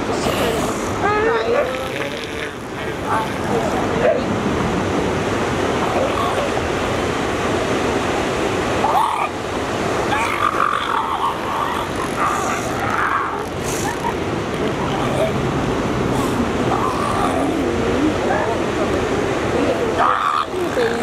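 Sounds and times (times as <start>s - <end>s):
voice-like calls: 0.0s - 4.3s, 5.7s - 6.9s, 8.8s - 9.4s, 10.0s - 18.7s, 19.6s - 21.0s
surf rushing on beach: 0.0s - 21.0s.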